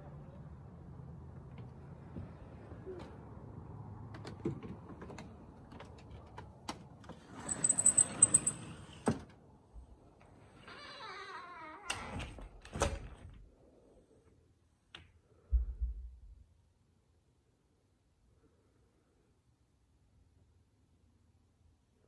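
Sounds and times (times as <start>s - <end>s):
door rattling and scraping: 7.0s - 9.3s.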